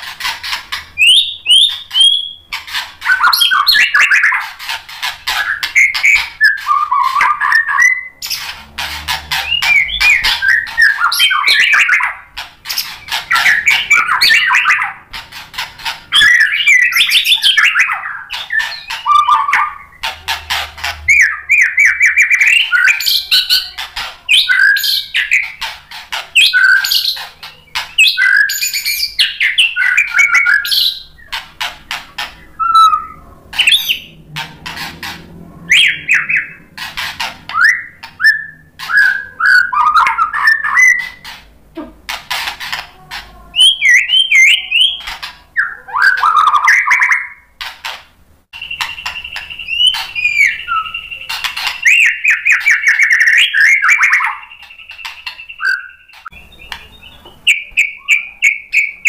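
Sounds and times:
songbird singing varied song: 9.1 - 15.0, 43.6 - 47.4, 48.6 - 59.0.

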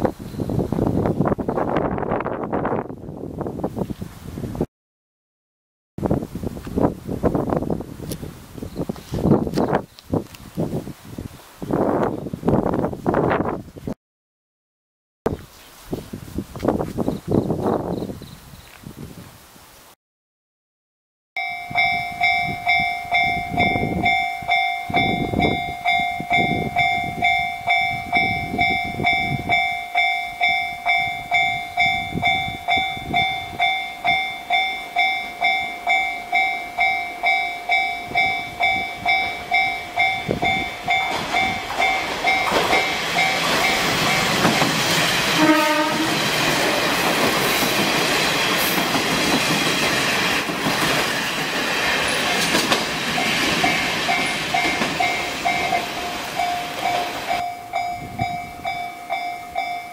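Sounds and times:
train wheel and engine noise: 6.0 - 13.6, 21.4 - 59.9
level-crossing warning bell: 21.4 - 48.6, 53.1 - 59.9.

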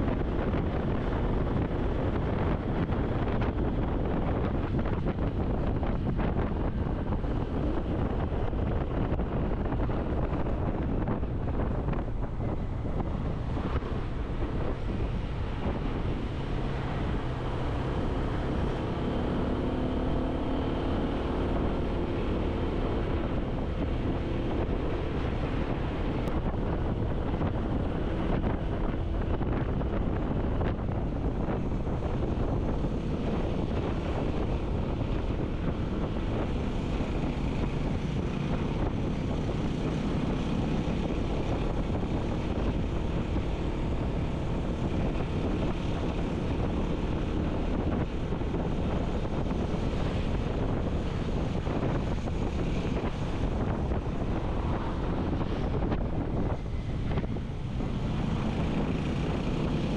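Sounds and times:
vehicle engine running: 0.0 - 59.9
wind noise on microphone: 0.0 - 59.9.

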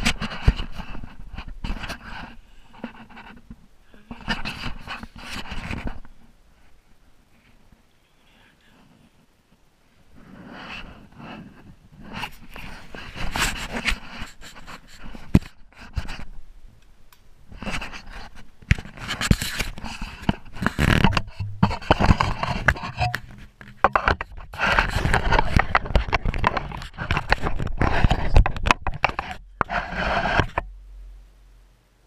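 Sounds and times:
bedding rustling and scraping: 0.0 - 7.8, 10.0 - 16.4, 17.5 - 30.7
small knocks and clicks: 18.6 - 30.7.

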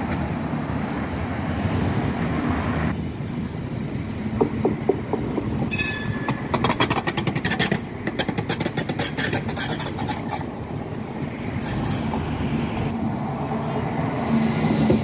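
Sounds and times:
tram rumbling past: 0.0 - 15.0
sharp clicks of tram wheels: 4.2 - 13.2.

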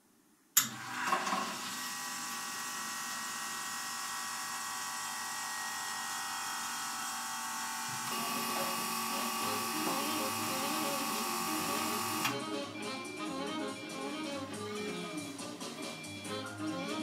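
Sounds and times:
espresso machine water pump: 0.6 - 12.4.

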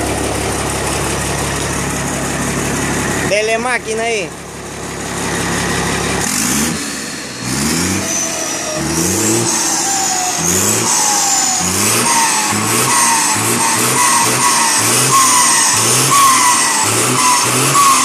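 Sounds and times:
diesel engine revving: 0.0 - 18.0
turbo whistle: 9.5 - 18.0.

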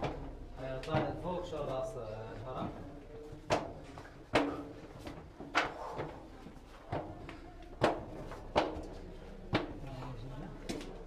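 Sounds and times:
footsteps on wooden ramp: 2.4 - 9.8.

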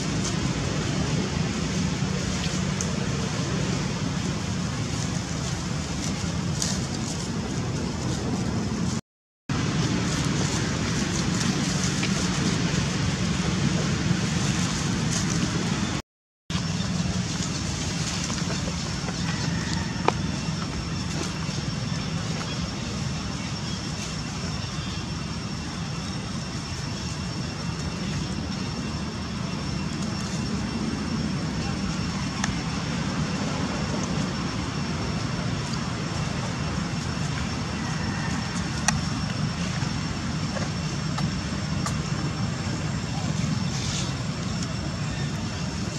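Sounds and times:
low outdoor rumble: 0.0 - 45.9.

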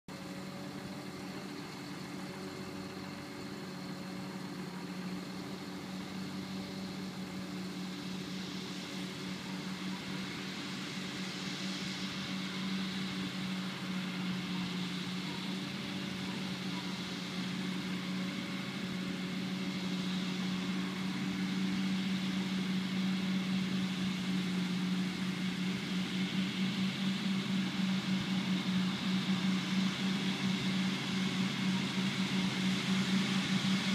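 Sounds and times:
forage harvester and tractor cutting: 0.1 - 33.9
tractor diesel engine idling: 0.1 - 33.9.

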